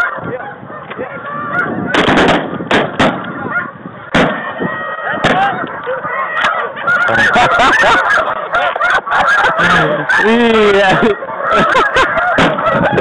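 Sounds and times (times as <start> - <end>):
geese honking: 0.0 - 13.0
shotgun shots: 1.9 - 3.3, 4.1 - 4.5.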